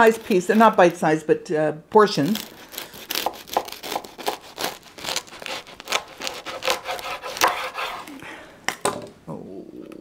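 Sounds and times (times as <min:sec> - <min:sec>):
knife sawing through crispy crust: 0:02.2 - 0:08.1.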